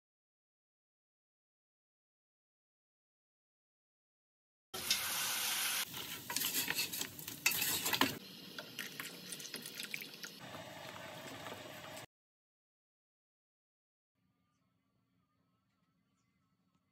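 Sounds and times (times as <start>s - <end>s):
wooden spoon stirring in metal pot: 5.9s - 8.2s.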